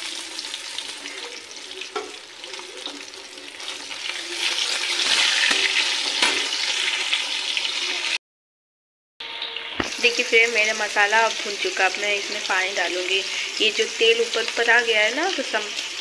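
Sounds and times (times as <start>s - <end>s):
fish sizzling in hot oil: 0.0s - 8.2s, 9.2s - 16.0s
spatula scraping pan: 0.7s - 7.7s.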